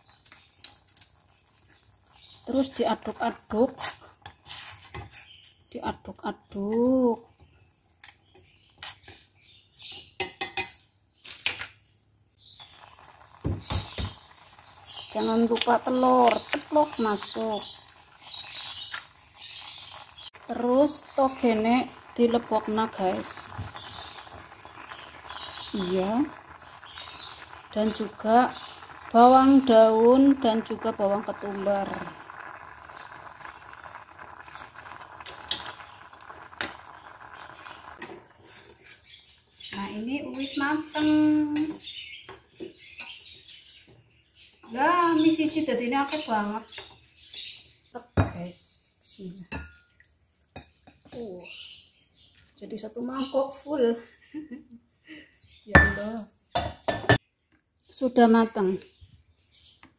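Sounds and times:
utensil scraping a cooking pot: 0:00.1 - 0:05.4, 0:12.6 - 0:39.2.

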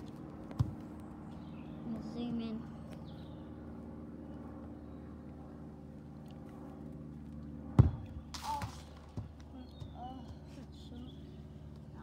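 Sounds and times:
steady low hum: 0:00.0 - 0:12.0
football kicked thump: 0:00.5 - 0:00.8, 0:07.8 - 0:08.1.

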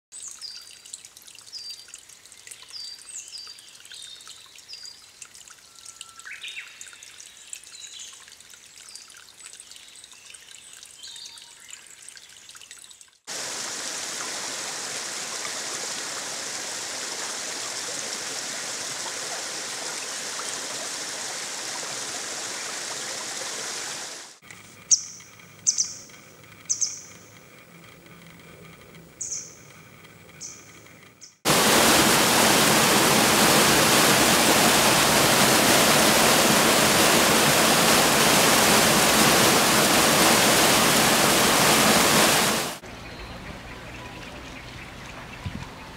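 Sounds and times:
water trickling: 0:00.1 - 0:24.7, 0:31.5 - 0:42.8
loud rush of flowing water: 0:13.3 - 0:24.4, 0:31.5 - 0:42.8
small high bird chirps: 0:24.9 - 0:27.3.

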